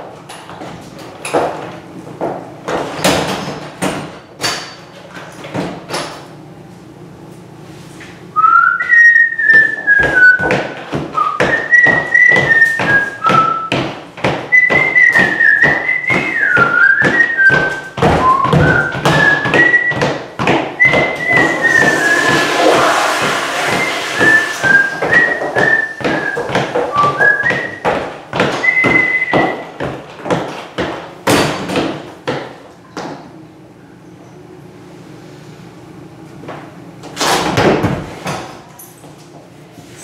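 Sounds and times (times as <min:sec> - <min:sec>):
person whistling a tune: 0:08.4 - 0:10.5, 0:11.2 - 0:13.7, 0:14.5 - 0:20.2, 0:20.8 - 0:23.0, 0:23.6 - 0:27.8, 0:28.6 - 0:29.7
steady beat of sharp taps: 0:10.0 - 0:21.6, 0:25.0 - 0:31.1.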